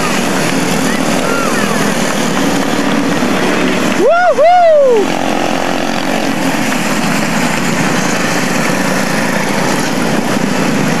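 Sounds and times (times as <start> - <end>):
small race car engines droning: 0.0 - 11.0.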